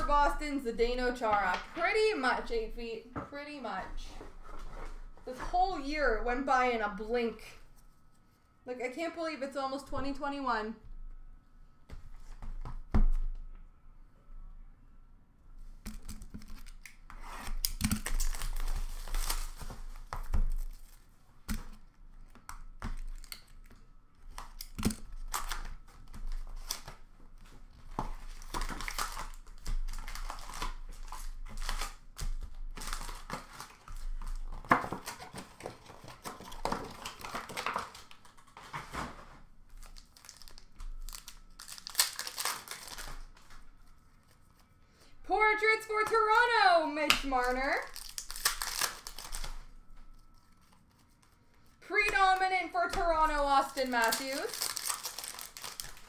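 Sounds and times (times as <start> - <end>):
cards rustling and clicking: 15.8 - 39.1, 39.8 - 44.7, 47.1 - 56.0
card wrappers tearing and crinkling: 15.9 - 21.1, 22.2 - 38.8, 39.8 - 44.6, 47.2 - 56.0.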